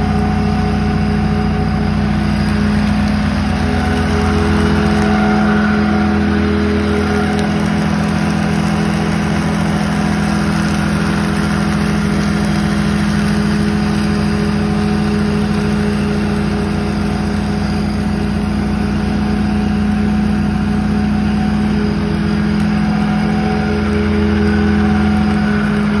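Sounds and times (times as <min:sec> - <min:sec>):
mower blades and blower: 0:00.0 - 0:26.0
riding mower engine running: 0:00.0 - 0:26.0.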